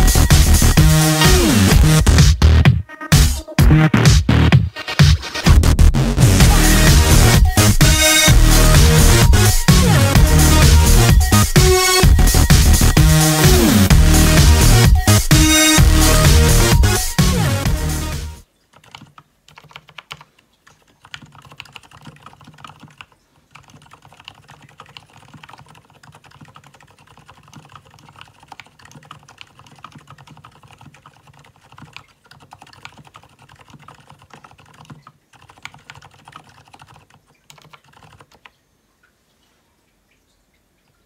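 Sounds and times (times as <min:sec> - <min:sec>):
typing on mechanical keyboard: 0:18.7 - 0:38.6.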